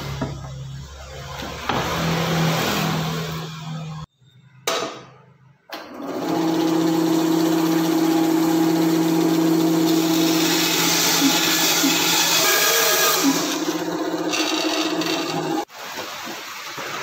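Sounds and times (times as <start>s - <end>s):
bandsaw running: 6.2s - 15.7s.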